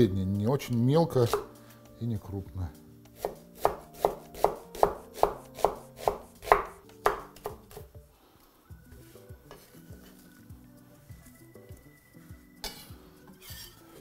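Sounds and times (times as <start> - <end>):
knife chopping on wooden board: 1.3 - 1.5, 3.2 - 7.9.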